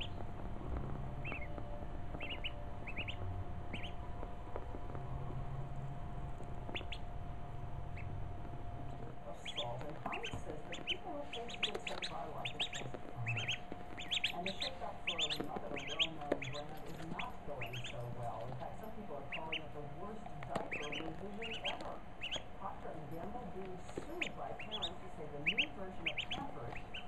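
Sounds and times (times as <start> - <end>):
duckling peeping: 0.0 - 27.0.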